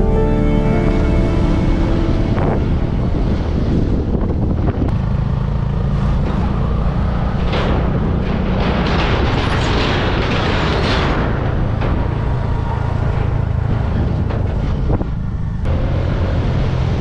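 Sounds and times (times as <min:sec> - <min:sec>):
motorcycle engine running: 0:00.0 - 0:08.6
tyres rushing on steel bridge: 0:00.0 - 0:17.0.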